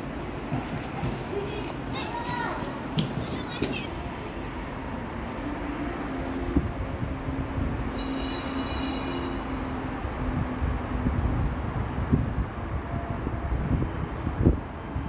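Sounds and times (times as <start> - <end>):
low city rumble with hum: 0.0 - 15.0.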